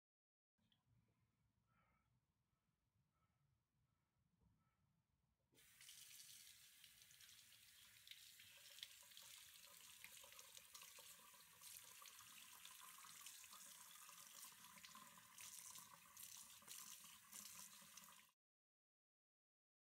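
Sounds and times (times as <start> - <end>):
tap water running into sink: 5.6 - 18.3.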